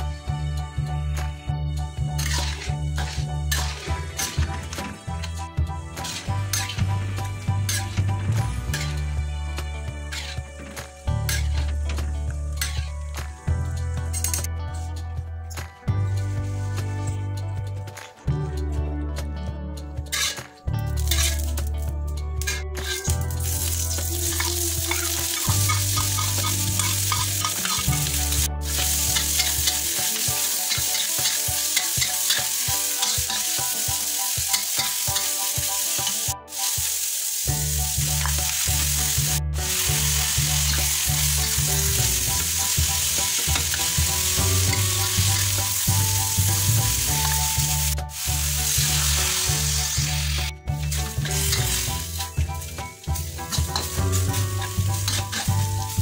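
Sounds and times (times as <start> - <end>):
food sizzling in hot oil: 2.0 - 13.4, 20.1 - 21.6, 22.5 - 56.0
spatula stirring in wok: 2.2 - 4.7, 6.0 - 6.9, 10.1 - 10.5, 20.1 - 20.4, 21.1 - 21.4, 24.3 - 33.8, 50.9 - 56.0.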